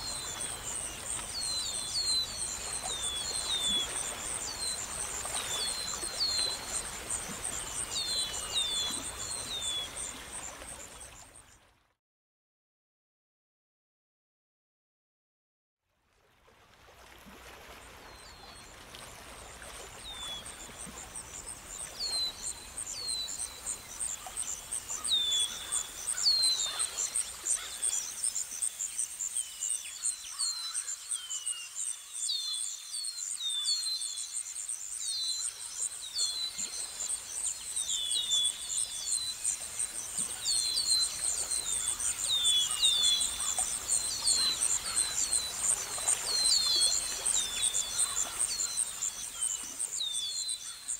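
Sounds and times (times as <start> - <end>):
insects trilling: 34.0 - 50.9.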